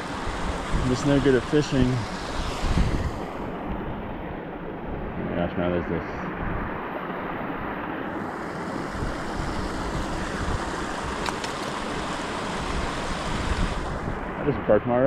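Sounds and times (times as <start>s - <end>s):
wind noise on microphone: 0.0s - 4.3s, 8.4s - 14.8s
creek water rushing: 0.0s - 15.0s.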